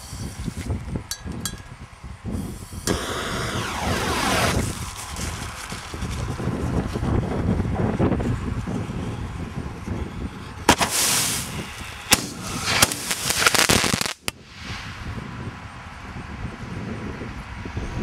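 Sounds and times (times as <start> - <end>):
rushing hiss: 0.0 - 0.8, 2.3 - 6.6, 10.7 - 15.1
firework shell bursts: 0.0 - 7.1, 10.6 - 14.4
wind noise on microphone: 0.0 - 18.0
mortar tube bang: 12.1 - 13.1.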